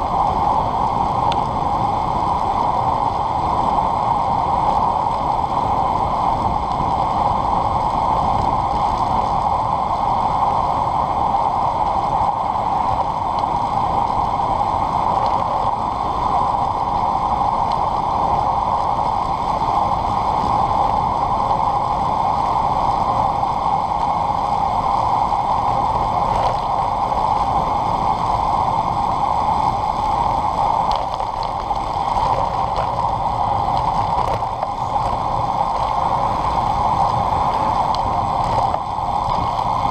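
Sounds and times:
wind buffeting microphone: 0:00.0 - 0:39.9.

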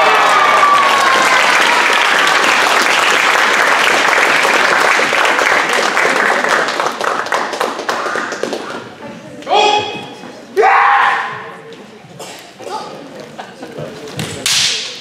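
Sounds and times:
spectators clapping: 0:00.0 - 0:09.0.

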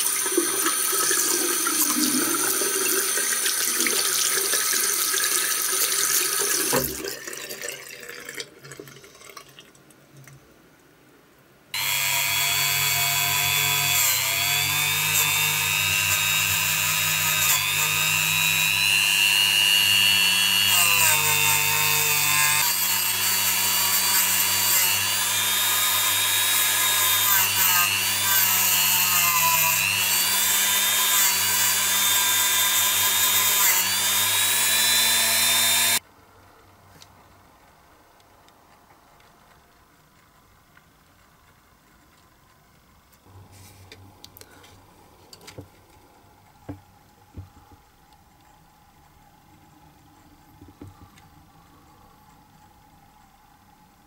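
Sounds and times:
tap water running: 0:00.0 - 0:10.3, 0:50.6 - 0:51.0
rotary tool whining: 0:11.8 - 0:36.0.

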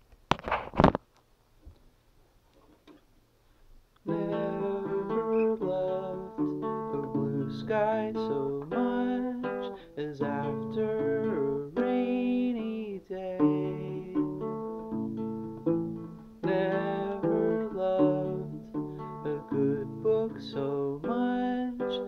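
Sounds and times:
man singing: 0:04.0 - 0:14.7, 0:16.4 - 0:22.0
acoustic guitar strumming: 0:04.1 - 0:22.0.

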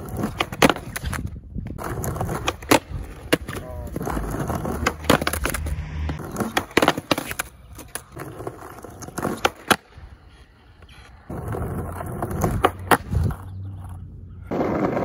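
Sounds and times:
skateboard clacking on curb: 0:00.0 - 0:05.6
skateboard wheels rolling on asphalt: 0:00.0 - 0:15.0.

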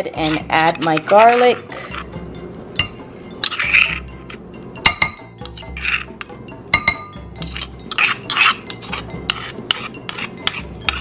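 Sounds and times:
spoon clinking on ceramic bowl: 0:02.8 - 0:11.0.

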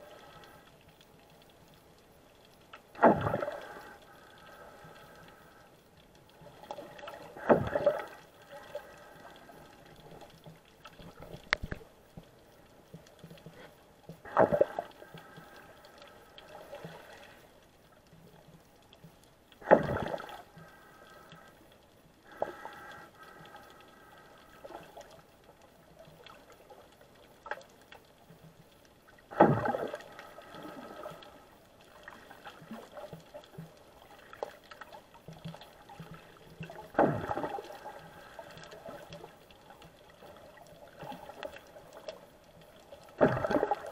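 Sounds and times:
low steady hiss: 0:00.0 - 0:43.9
underwater gurgling surges: 0:02.9 - 0:04.0, 0:06.5 - 0:10.2, 0:14.2 - 0:15.1, 0:19.6 - 0:20.5, 0:29.2 - 0:33.4, 0:35.8 - 0:39.3, 0:43.0 - 0:43.9.

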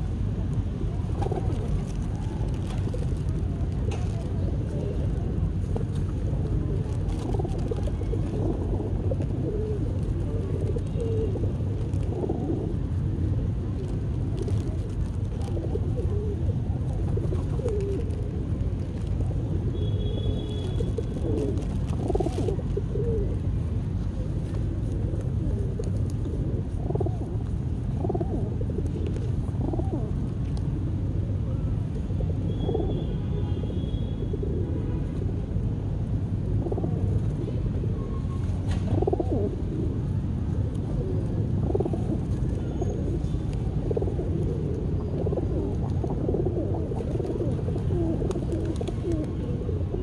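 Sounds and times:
pigeons cooing: 0:00.9 - 0:18.6, 0:19.2 - 0:23.5, 0:24.2 - 0:30.3, 0:32.1 - 0:33.4, 0:36.6 - 0:37.7, 0:38.8 - 0:50.0
low steady rumble: 0:34.4 - 0:50.0.

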